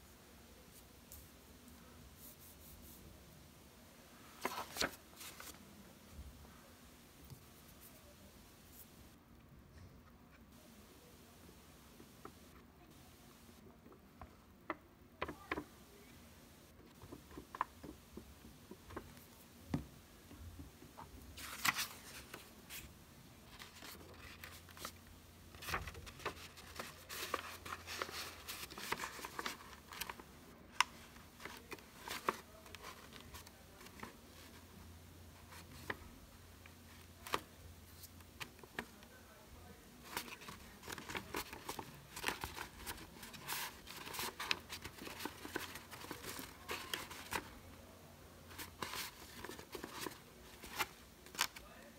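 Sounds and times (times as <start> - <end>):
paper rustling and crinkling: 4.3 - 5.6, 20.9 - 22.9, 23.5 - 34.6, 40.0 - 47.6, 48.5 - 51.7.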